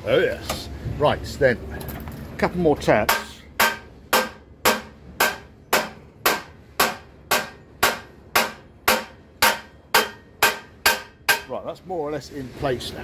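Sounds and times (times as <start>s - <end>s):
hammer striking steel: 3.0s - 11.7s.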